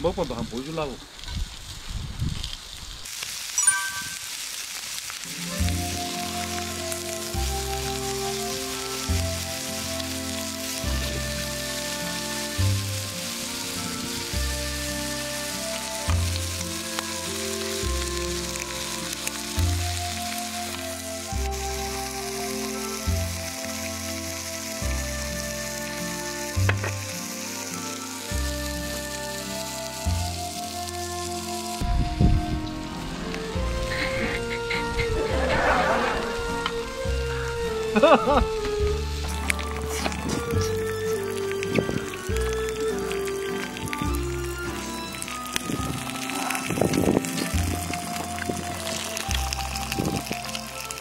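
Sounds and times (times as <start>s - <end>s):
meat sizzling on grill pan: 0.8s - 31.8s, 34.6s - 51.0s
light background music: 5.3s - 51.0s.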